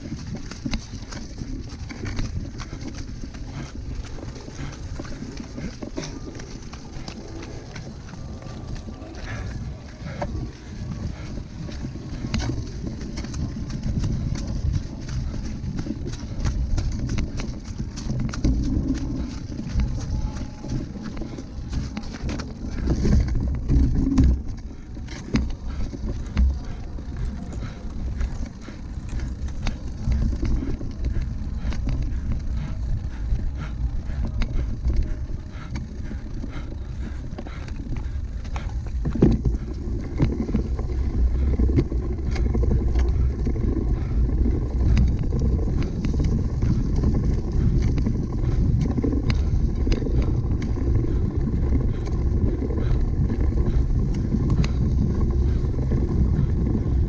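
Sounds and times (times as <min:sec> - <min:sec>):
bike rattling clicks: 0:00.0 - 0:57.0
bike rumbling over rough ground: 0:00.0 - 0:57.0.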